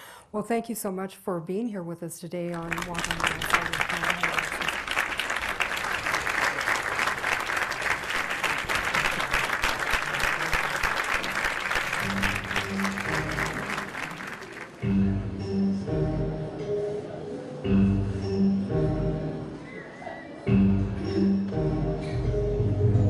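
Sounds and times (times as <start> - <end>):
audience applauding: 2.6 - 14.8
music: 11.9 - 23.0.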